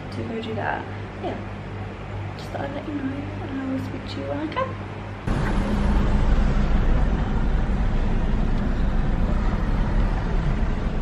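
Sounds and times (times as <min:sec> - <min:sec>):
car engine and tyres rumbling: 0:05.2 - 0:11.0.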